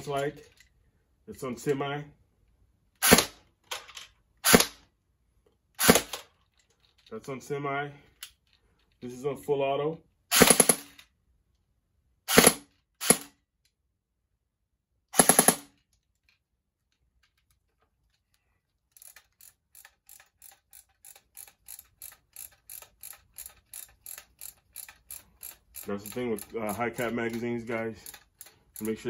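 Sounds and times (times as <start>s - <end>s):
airsoft rifle bursts: 5.8s - 6.2s, 15.2s - 15.7s
magazine wheel ratcheting clicks: 18.9s - 29.0s.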